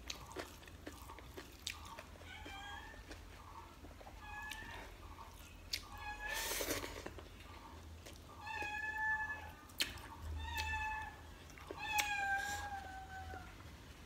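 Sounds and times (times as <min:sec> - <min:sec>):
cat meowing: 0:08.4 - 0:09.5, 0:11.8 - 0:13.5.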